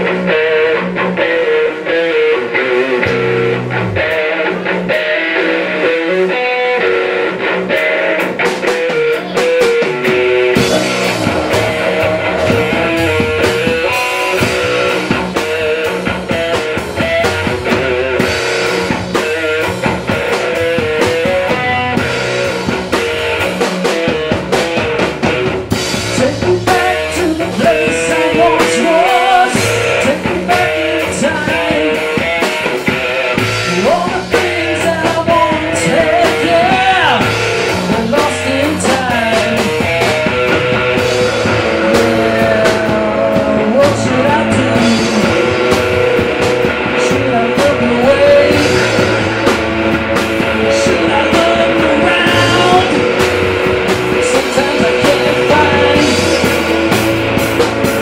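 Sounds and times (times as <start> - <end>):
drum kit: 0.0 - 58.0
electric guitars: 0.0 - 58.0.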